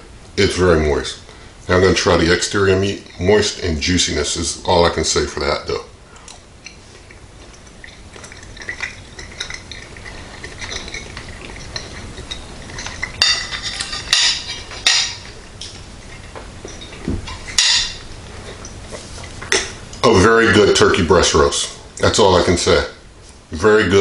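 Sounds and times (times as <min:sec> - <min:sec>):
metal fork scraping a plate: 0:07.4 - 0:18.7.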